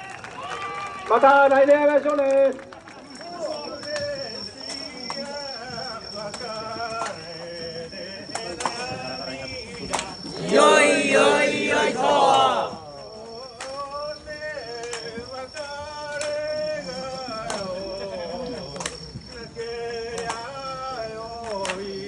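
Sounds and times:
men chanting: 0:03.2 - 0:22.0
men shouting together: 0:10.4 - 0:12.8.

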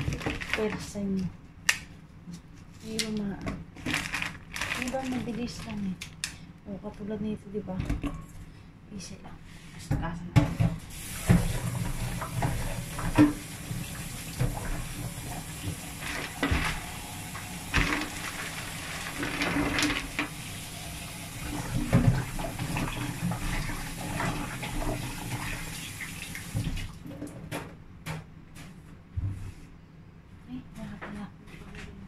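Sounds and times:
knocks and clatter in sink: 0:00.0 - 0:01.0, 0:07.8 - 0:08.3, 0:09.9 - 0:16.9, 0:17.6 - 0:20.4, 0:21.4 - 0:25.5.

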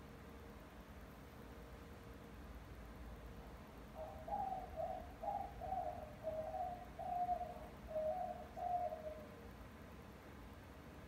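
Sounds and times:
dove cooing: 0:03.9 - 0:09.4.

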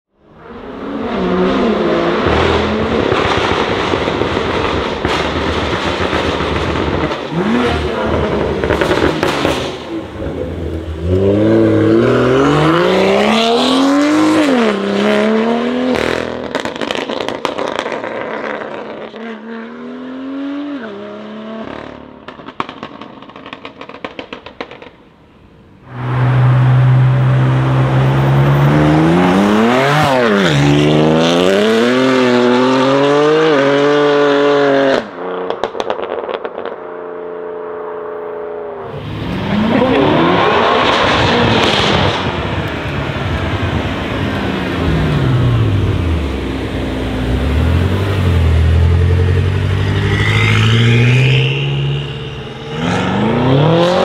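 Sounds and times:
cars accelerating hard: 0:00.3 - 0:24.8, 0:25.8 - 0:36.8, 0:38.3 - 0:54.0
exhaust crackles and pops: 0:03.0 - 0:09.8, 0:22.2 - 0:25.1, 0:35.5 - 0:36.8.

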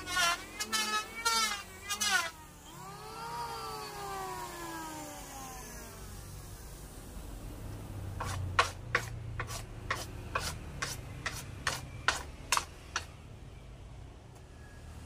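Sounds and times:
brushing strokes on wooden board: 0:08.2 - 0:12.7.

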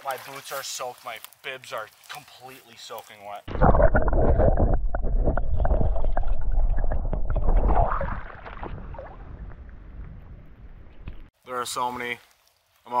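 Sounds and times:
underwater river water gurgling: 0:03.5 - 0:11.1.

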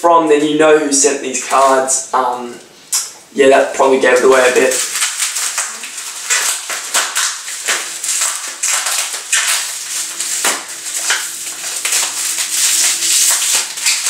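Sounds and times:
bubble wrap crinkling: 0:04.0 - 0:14.0.

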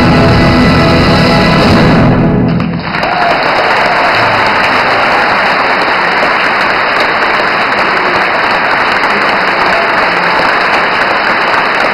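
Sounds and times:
audience applauding: 0:02.6 - 0:11.9.

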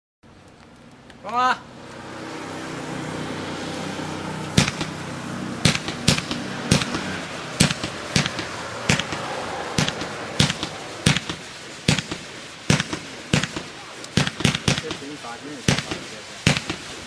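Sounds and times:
steady hiss: 0:00.3 - 0:17.0
firework launch pops: 0:04.5 - 0:05.0, 0:05.6 - 0:17.0.

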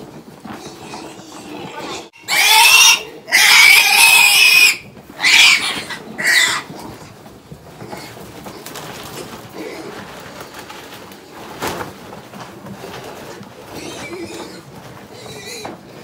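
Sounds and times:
piglets grunting and calling: 0:00.5 - 0:06.9.

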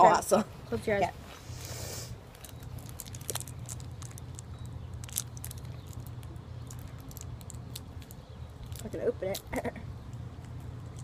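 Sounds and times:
plastic wrapper crinkling: 0:02.2 - 0:09.6.

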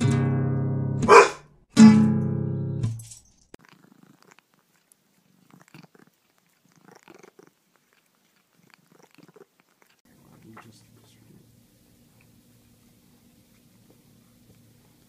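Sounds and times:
cat purring: 0:03.6 - 0:15.0.

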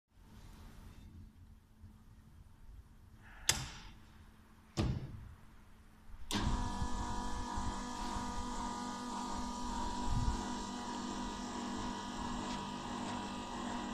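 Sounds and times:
motor humming: 0:06.3 - 0:13.9.

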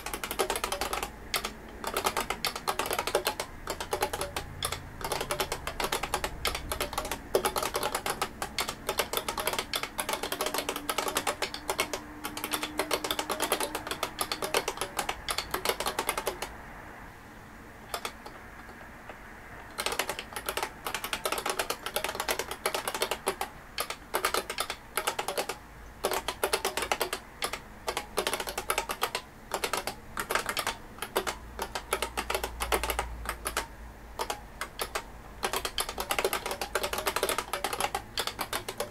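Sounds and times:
keyboard key clacks: 0:00.0 - 0:16.6, 0:17.9 - 0:38.9.

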